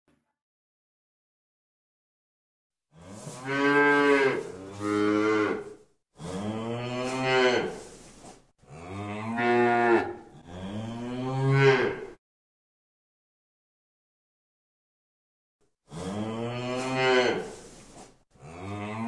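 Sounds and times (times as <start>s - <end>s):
cow mooing: 2.9s - 7.8s, 8.7s - 12.2s, 15.9s - 17.6s, 18.4s - 19.0s.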